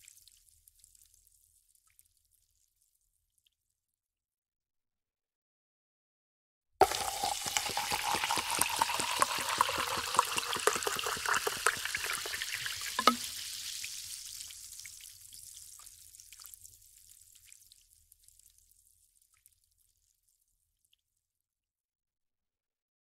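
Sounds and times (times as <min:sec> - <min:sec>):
cola pouring into a glass: 0:06.8 - 0:14.0
carbonation fizzing and popping: 0:06.8 - 0:21.1.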